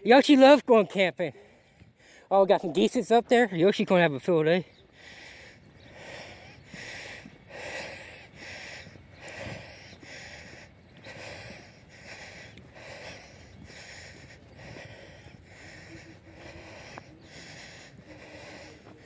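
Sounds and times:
man breathing hard: 1.3s - 2.4s, 4.6s - 19.0s.

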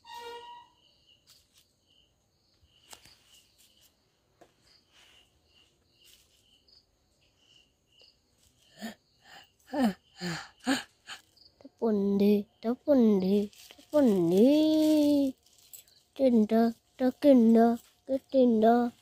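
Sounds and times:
insect chirping: 0.0s - 19.0s
breathy voice sound: 8.6s - 11.3s.

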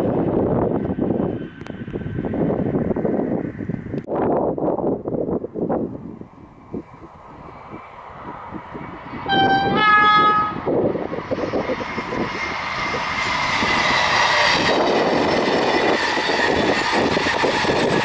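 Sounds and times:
train rushing at speed: 0.0s - 18.0s
two-tone train horn: 9.3s - 10.7s.

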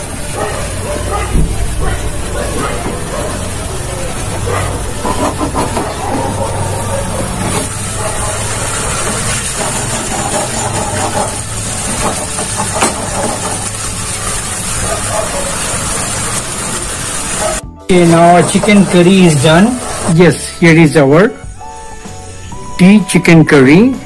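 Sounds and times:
spatula turning food: 4.2s - 20.4s.

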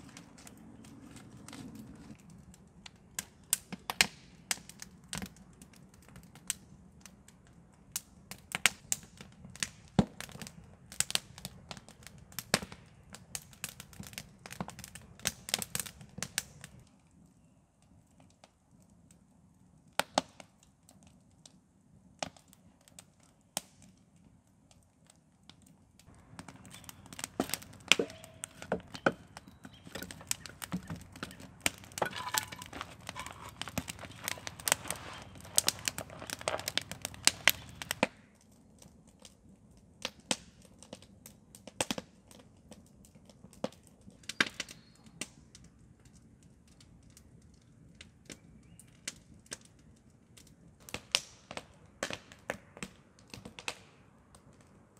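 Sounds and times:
campfire crackling and popping: 0.0s - 54.9s.

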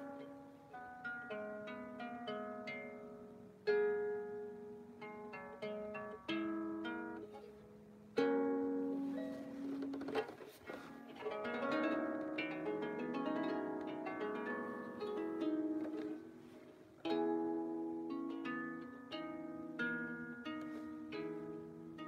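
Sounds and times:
harp being plucked: 0.0s - 22.0s
sweep across harp strings: 6.3s - 22.0s.

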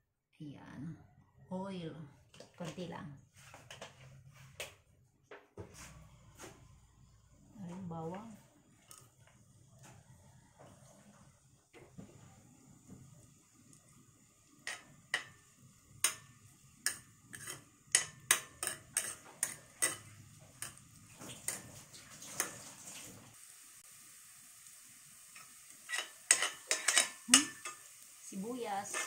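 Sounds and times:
faint sizzle: 5.8s - 29.0s
metal spatula tapping a pan: 14.6s - 15.4s, 16.0s - 20.8s, 25.4s - 27.8s.

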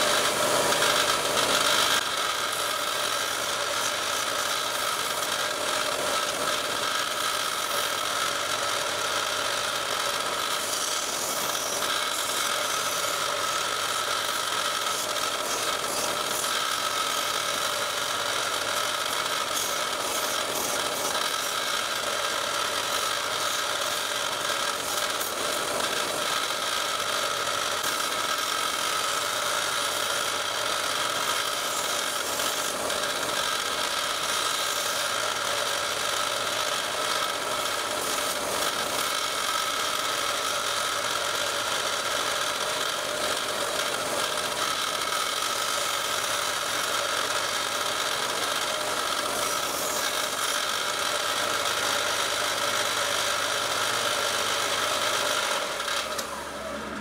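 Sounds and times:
belt sander running: 0.0s - 57.0s
carbon fiber grinding on belt: 0.0s - 57.0s.

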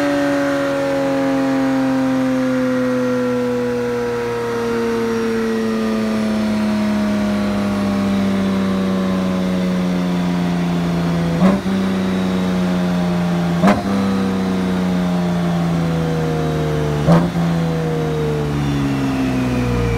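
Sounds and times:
motorcycle engine revs dropping: 10.9s - 15.8s, 16.7s - 19.9s
sharp exhaust pops: 13.5s - 14.1s.

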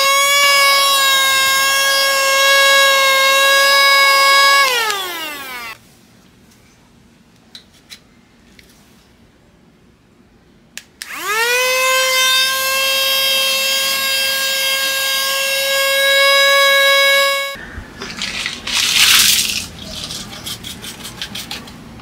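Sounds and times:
handheld vacuum whine: 0.0s - 5.8s, 11.0s - 17.6s
paper rustling and crinkling: 18.0s - 20.4s.

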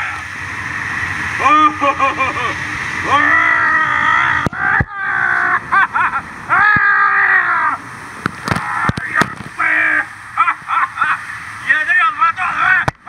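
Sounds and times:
man yelling: 3.0s - 5.6s, 6.5s - 7.8s, 8.5s - 10.6s.

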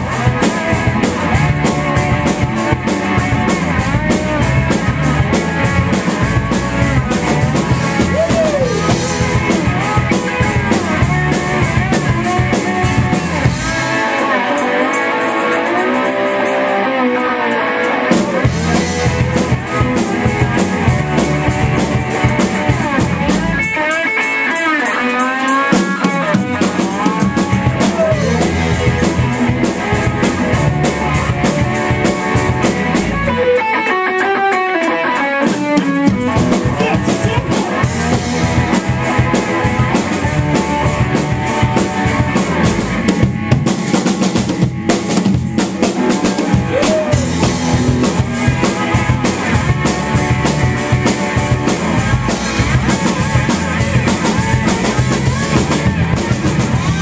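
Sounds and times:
rock band playing: 0.0s - 57.0s.

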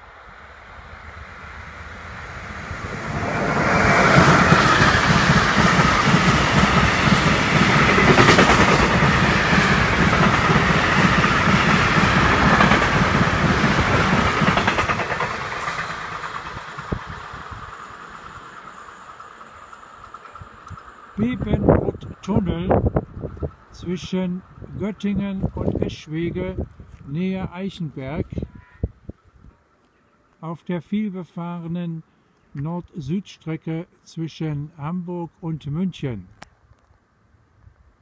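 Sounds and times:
freight train wheels rumbling: 0.1s - 23.8s.

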